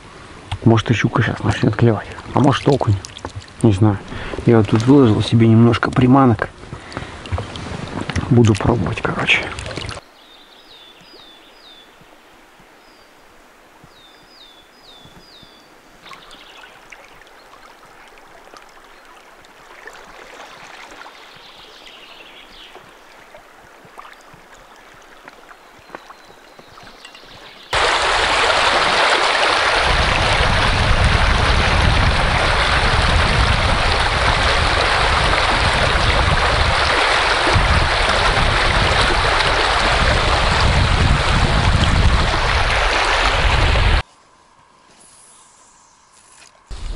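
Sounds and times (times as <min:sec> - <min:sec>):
river flowing: 0:09.1 - 0:44.7
small birds chirping: 0:10.0 - 0:13.2, 0:13.8 - 0:18.0, 0:20.3 - 0:27.8.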